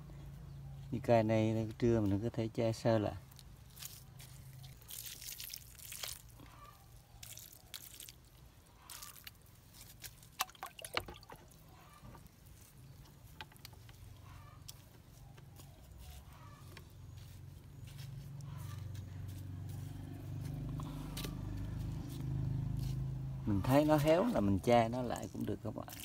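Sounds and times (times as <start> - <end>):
water dripping and splashing: 3.2 - 14.1, 25.2 - 26.0
water plops: 10.0 - 11.6.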